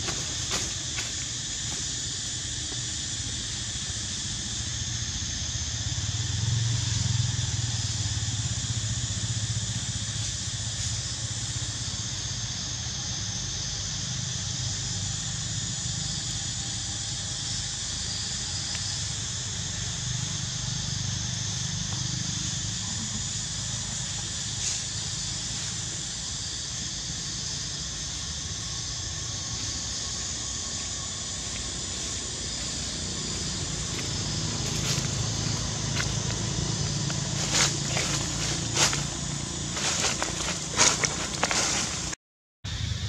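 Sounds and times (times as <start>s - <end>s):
continuous high hiss: 0.0s - 43.0s.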